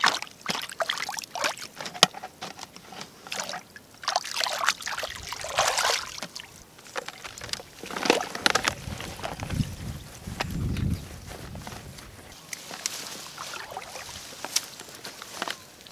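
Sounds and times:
muddy water splashing: 0.0s - 1.9s, 3.1s - 9.7s, 12.4s - 15.9s.

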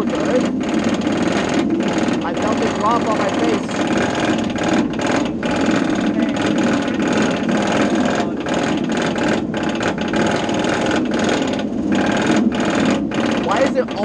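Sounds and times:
roller coaster chain lift clatter: 0.0s - 14.0s.

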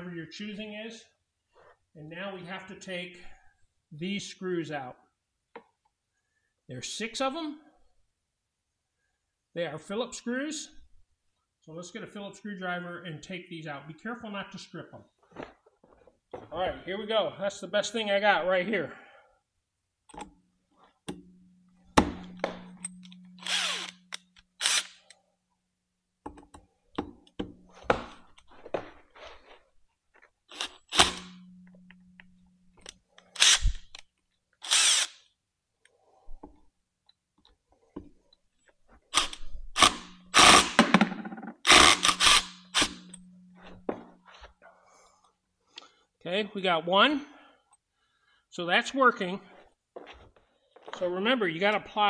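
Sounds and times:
cordless drill humming: 22.4s - 25.0s, 41.7s - 43.2s.

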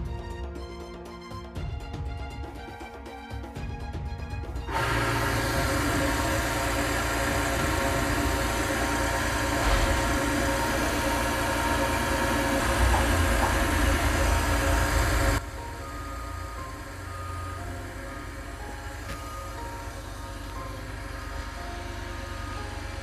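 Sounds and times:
electric motor whirring: 4.7s - 23.0s.

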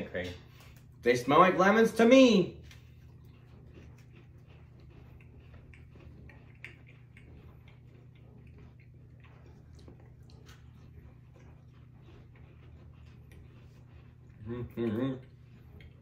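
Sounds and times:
crunching and chewing cookies: 0.0s - 16.0s
low room hum: 0.0s - 16.0s.

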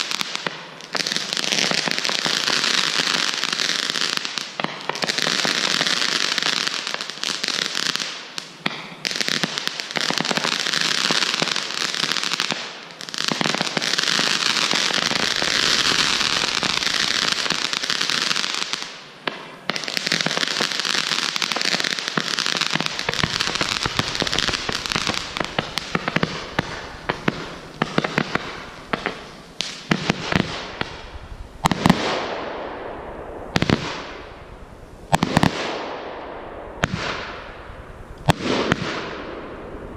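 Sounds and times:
fireworks crackling and popping: 0.0s - 39.9s.

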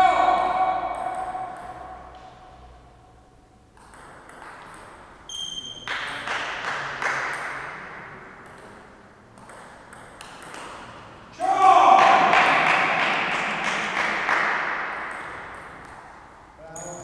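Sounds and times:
table tennis ball clicking: 9.4s - 10.8s.

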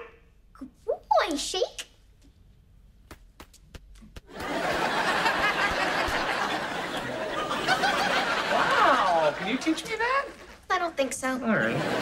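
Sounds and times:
studio audience laughing: 4.3s - 10.4s, 11.6s - 12.0s.

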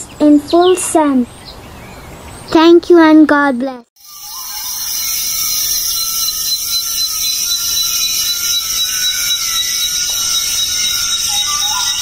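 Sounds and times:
buzzing insect chorus: 4.0s - 12.0s.

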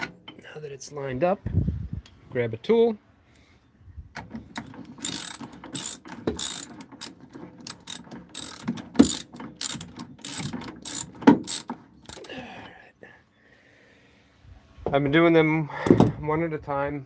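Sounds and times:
ratchet wrench clicking: 4.6s - 12.3s.

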